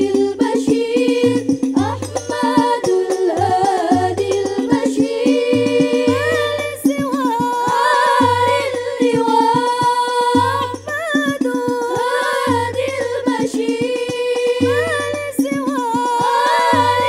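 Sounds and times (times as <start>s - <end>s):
hand drum strokes: 0.0s - 17.0s
voices singing together: 0.0s - 17.0s.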